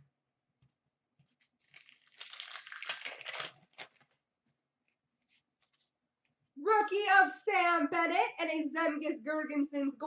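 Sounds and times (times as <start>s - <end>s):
card pack wrapper tearing and crinkling: 1.4s - 4.2s.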